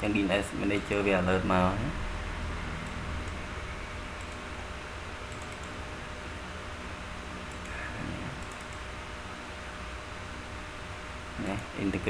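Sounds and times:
steady hiss and hum: 0.0 - 12.0
computer mouse clicks: 4.2 - 4.4, 5.3 - 5.8, 7.5 - 7.8, 8.4 - 8.9.

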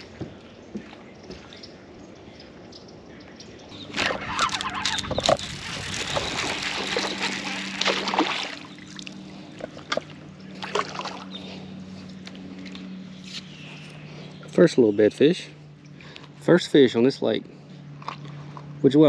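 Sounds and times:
steady low hum: 0.0 - 19.0
fish splashing at water surface: 3.9 - 11.3.

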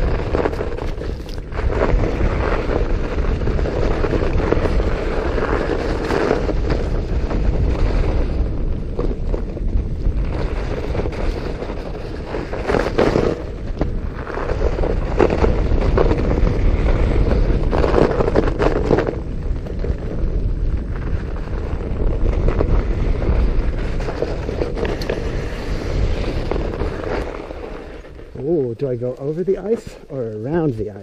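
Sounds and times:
bike tyres crunching and rattling: 0.0 - 31.0
wind on microphone: 0.0 - 31.0.

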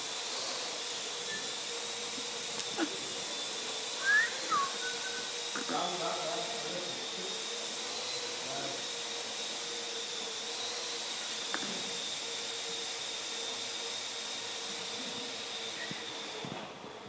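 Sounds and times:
drone propellers whirring: 0.0 - 11.9.

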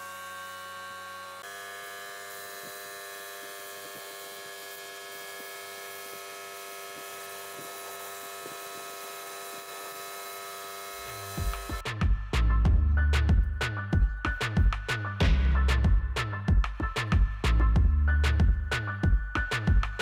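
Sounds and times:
air compressor humming: 0.0 - 11.9.

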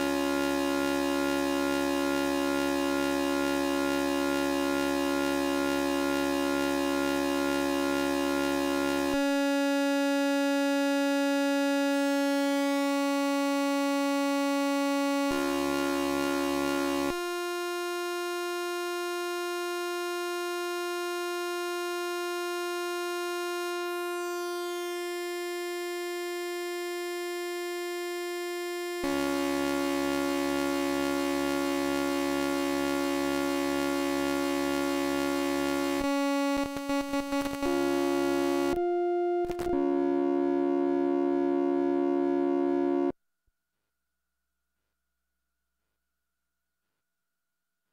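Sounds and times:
synthesizer oscillator tone: 29.0 - 43.1.

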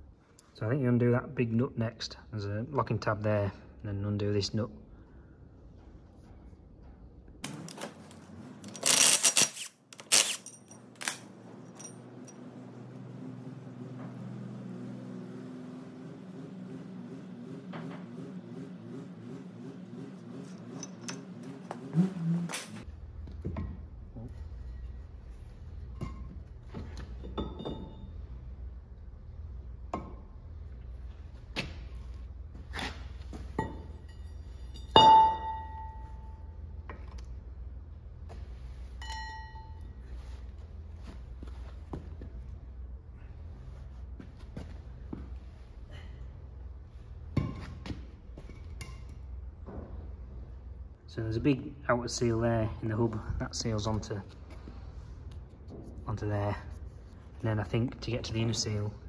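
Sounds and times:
heavy steel parts clanking: 32.8 - 36.3
light metallic clinks: 33.6 - 36.3
sharp metallic knocks: 34.8 - 36.0.

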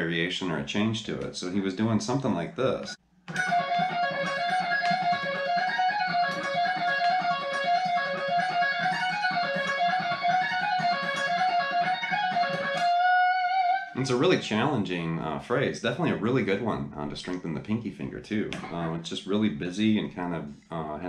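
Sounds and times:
electric guitar fast lick: 3.3 - 14.3.

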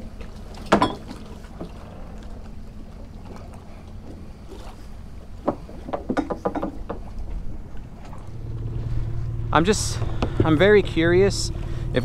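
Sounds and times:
faint knocks: 5.4 - 7.4.

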